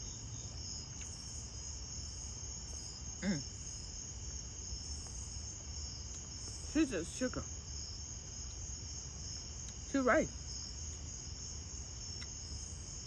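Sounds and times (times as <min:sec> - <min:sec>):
crickets chirping: 0:00.0 - 0:13.0
person short vocal sound: 0:03.2 - 0:03.4.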